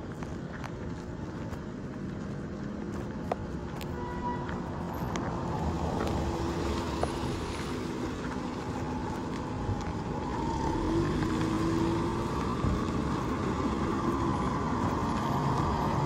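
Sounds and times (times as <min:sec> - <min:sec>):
car driving on unpaved road: 0:00.0 - 0:16.0
other traffic: 0:00.0 - 0:16.0.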